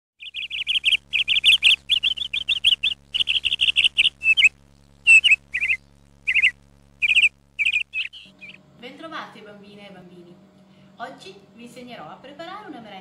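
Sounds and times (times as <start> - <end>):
bird chirping high notes: 0.2 - 4.5, 5.1 - 8.6
steady low hum: 0.2 - 13.0.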